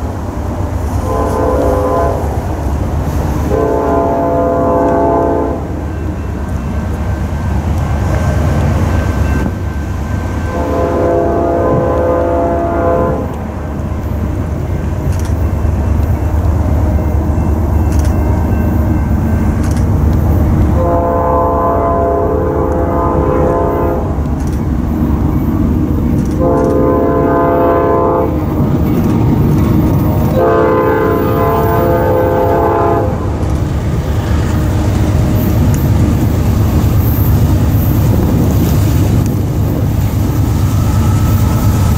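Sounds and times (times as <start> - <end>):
train rumbling: 0.0 - 41.9
locomotive air horn: 1.0 - 2.4, 3.4 - 5.8, 10.4 - 13.4, 20.7 - 24.2, 26.4 - 28.4, 30.3 - 33.4.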